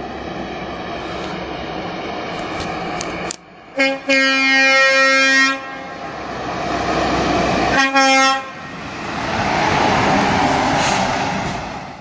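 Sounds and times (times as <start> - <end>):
truck engine and tyre noise: 0.0 - 12.0
air horn blast: 3.8 - 6.1, 7.7 - 8.6.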